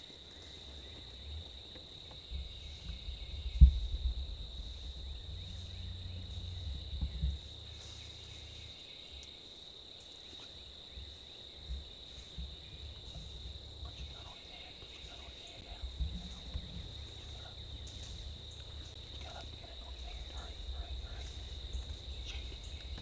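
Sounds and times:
low rumble: 0:02.2 - 0:08.9, 0:11.7 - 0:23.0
sharp low thump: 0:02.3 - 0:04.4.

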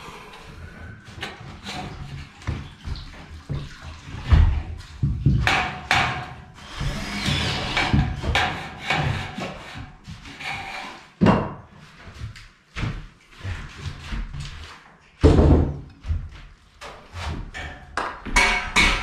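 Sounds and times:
metal profiles knocking and clattering: 0:01.2 - 0:09.9, 0:17.4 - 0:19.0.

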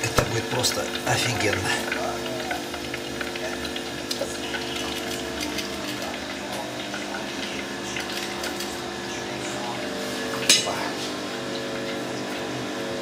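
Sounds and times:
hot oil sizzling in deep fryer: 0:00.0 - 0:13.0.

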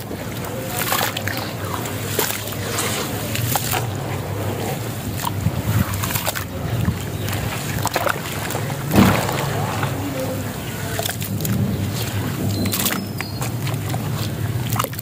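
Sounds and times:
hands sloshing water in metal basin: 0:00.0 - 0:15.0
sand crumbling: 0:08.8 - 0:11.4.

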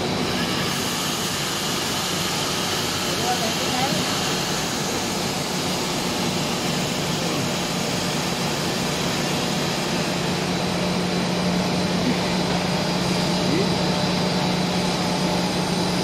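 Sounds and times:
extrusion machinery din: 0:00.0 - 0:16.0.

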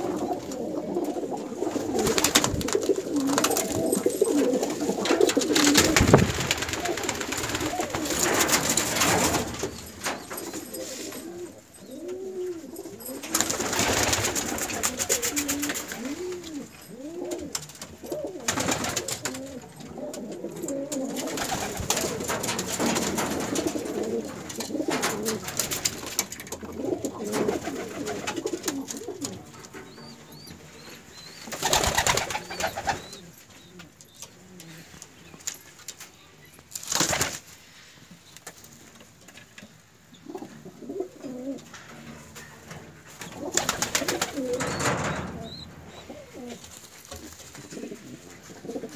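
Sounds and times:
pigeons cooing: 0:00.0 - 0:35.3, 0:40.2 - 0:48.9
loud rustling bursts: 0:04.9 - 0:10.9.

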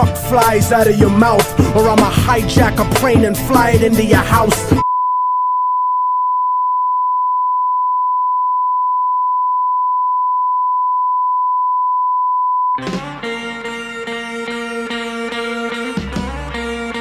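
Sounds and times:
music: 0:00.0 - 0:04.8, 0:12.8 - 0:17.0.

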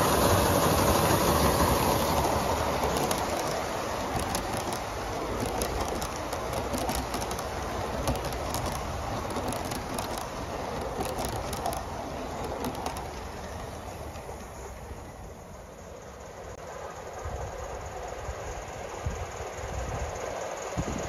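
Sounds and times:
model train wheels rolling: 0:00.0 - 0:16.6.

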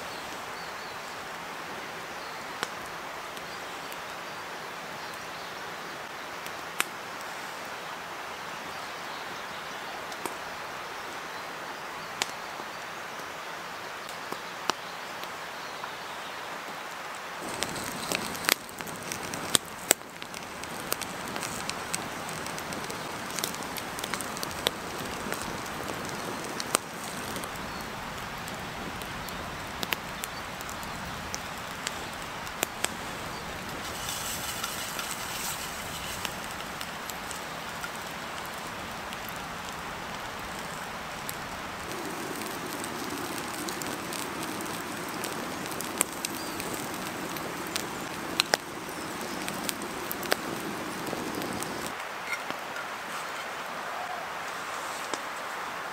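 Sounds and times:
campfire crackling and popping: 0:02.5 - 0:04.1, 0:06.4 - 0:07.6, 0:10.1 - 0:10.4, 0:17.4 - 0:53.5
sausages sizzling in a frying pan: 0:17.4 - 0:52.0.

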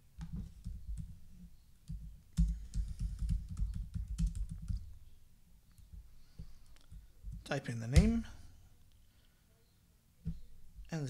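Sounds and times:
typing on computer keyboard: 0:01.9 - 0:04.9.

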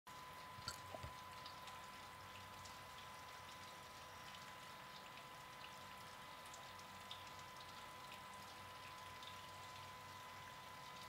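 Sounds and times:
fizzing ticks: 0:00.1 - 0:11.0
beer pouring from tap: 0:00.6 - 0:05.2.

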